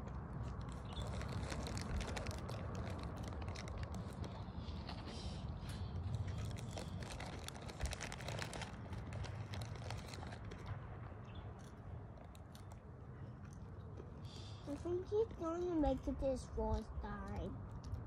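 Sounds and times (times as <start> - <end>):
wind rumble on microphone: 0.0 - 12.7
small crackles and scuffs: 0.0 - 18.0.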